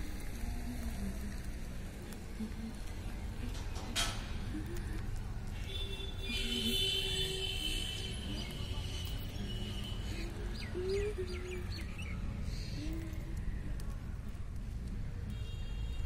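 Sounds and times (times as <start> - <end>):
small birds chirping: 8.1 - 13.3.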